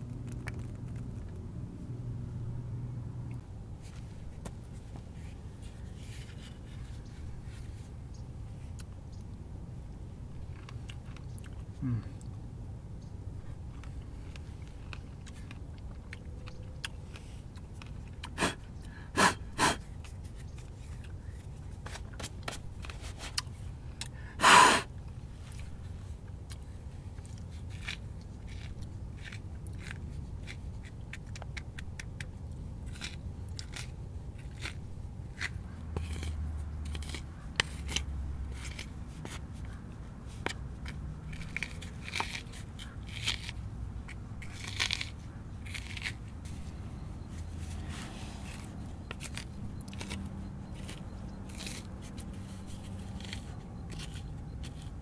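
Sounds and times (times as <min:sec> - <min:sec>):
pomegranate seeds crackling: 0:26.5 - 0:55.0.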